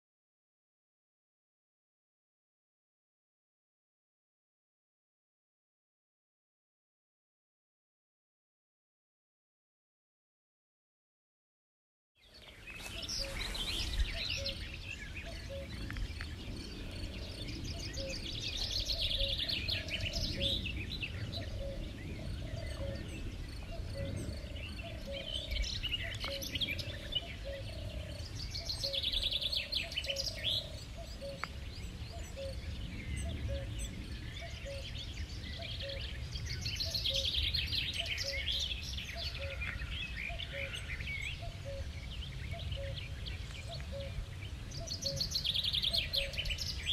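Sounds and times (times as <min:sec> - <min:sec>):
songbird trilling: 0:12.4 - 0:33.8, 0:34.4 - 0:44.2, 0:44.8 - 0:46.9.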